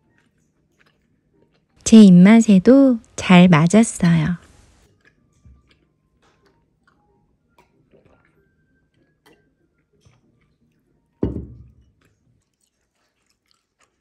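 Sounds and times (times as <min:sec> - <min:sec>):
soft chewing: 0:00.0 - 0:01.9, 0:04.6 - 0:11.2, 0:11.8 - 0:14.0.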